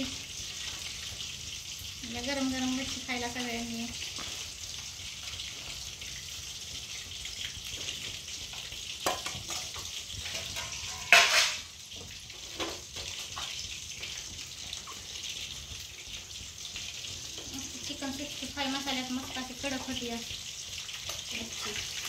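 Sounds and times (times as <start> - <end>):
fish sizzling in hot oil: 0.0 - 22.0
metal utensils clattering: 9.1 - 11.7.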